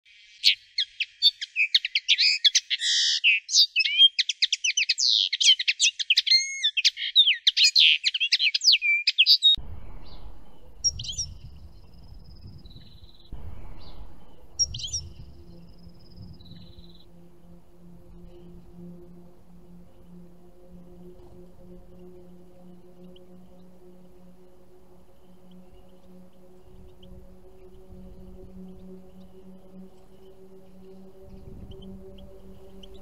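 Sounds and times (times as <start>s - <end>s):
songbird twittering song: 0.1s - 33.0s
low rumble: 9.6s - 33.0s.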